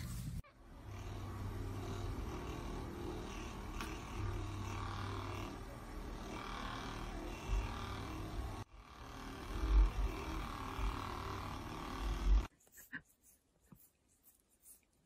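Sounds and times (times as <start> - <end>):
massage gun buzzing: 0.7 - 12.5.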